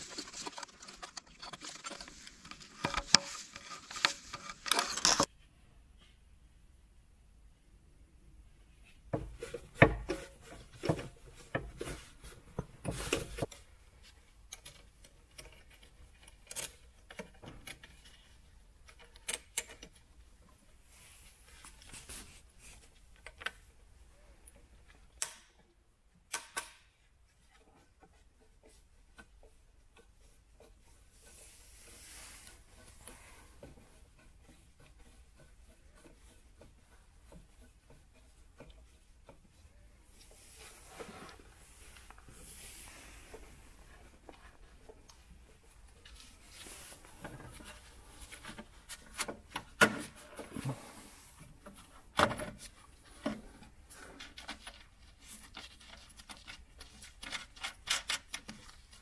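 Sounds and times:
metallic clicks and rattles of tools: 14.5 - 20.2
soft rubbing: 27.3 - 49.5.

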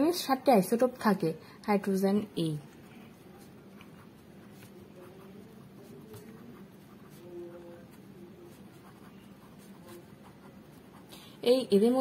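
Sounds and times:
low steady hum: 0.0 - 12.0
pen writing on paper: 2.8 - 11.1.

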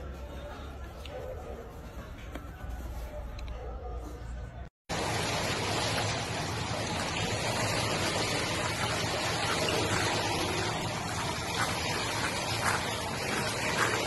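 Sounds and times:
dog paddling in pool water: 6.7 - 14.0.

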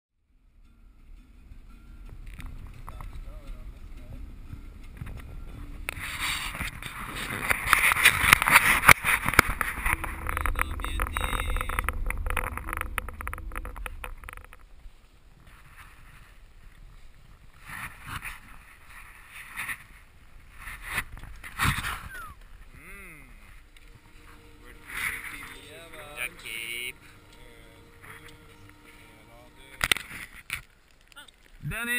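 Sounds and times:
van engine and tyres rumbling: 0.3 - 24.6
rustling bursts: 2.5 - 31.6.

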